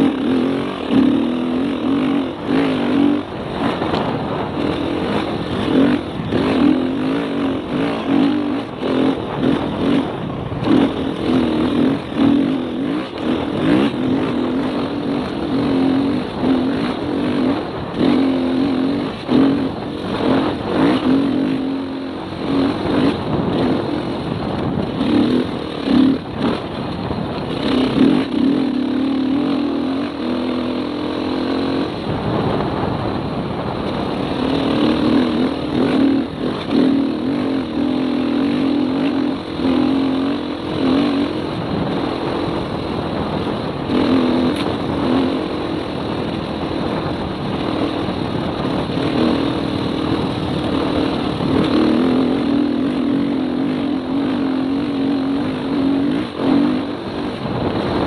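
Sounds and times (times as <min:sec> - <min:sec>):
dirt bike engine revving: 0:00.0 - 0:58.0
wind noise: 0:00.0 - 0:58.0.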